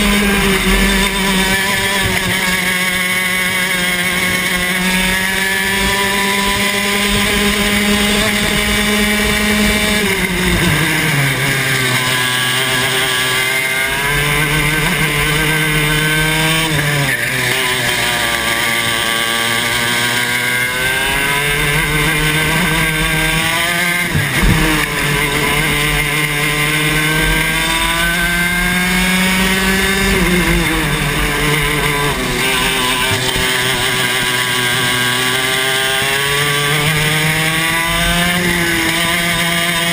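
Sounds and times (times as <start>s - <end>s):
kart engine at racing speed: 0.0s - 39.9s
loud bump: 24.1s - 26.3s.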